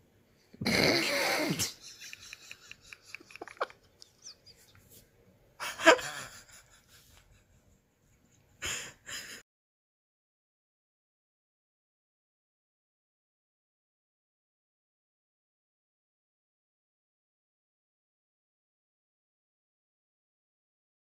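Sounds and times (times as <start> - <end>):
person laughing: 0.6 - 4.8, 5.6 - 7.5, 8.6 - 9.4.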